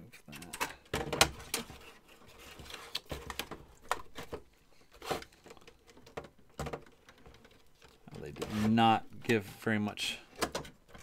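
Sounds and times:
plastic and metal clicks and knocks: 0:00.3 - 0:01.8, 0:02.8 - 0:04.5, 0:05.2 - 0:08.6, 0:10.3 - 0:11.0.

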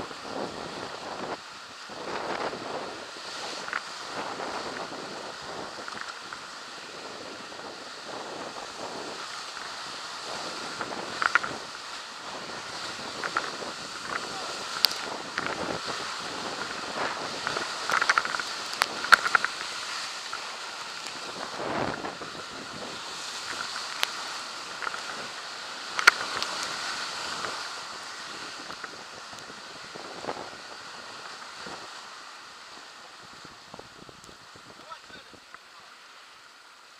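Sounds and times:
whitewater rushing and churning: 0:00.0 - 0:36.9.

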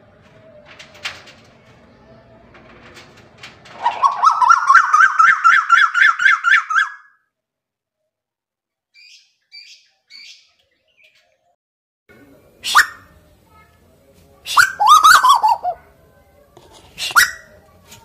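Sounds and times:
bird whistled calls rising: 0:03.8 - 0:07.2, 0:09.0 - 0:10.5, 0:14.5 - 0:15.7.

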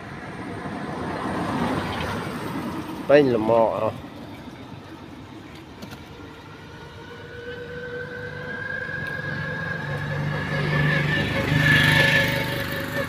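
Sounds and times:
vehicle engine humming with whine: 0:00.0 - 0:13.0
deeper drone: 0:06.1 - 0:13.0.

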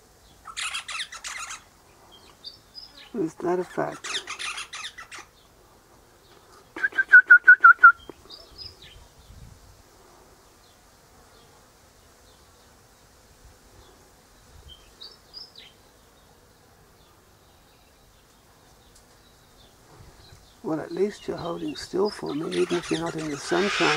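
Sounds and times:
bird sharp calling notes: 0:00.4 - 0:01.7, 0:03.9 - 0:05.4, 0:22.2 - 0:23.9.

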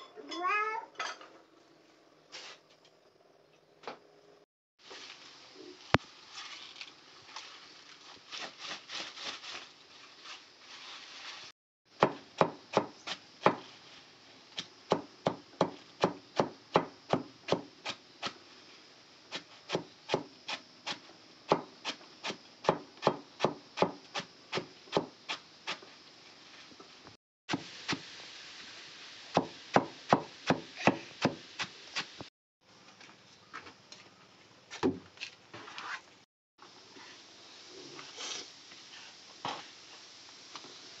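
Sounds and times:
leaves rustling: 0:04.8 - 0:11.6, 0:13.1 - 0:14.6, 0:25.8 - 0:28.0.

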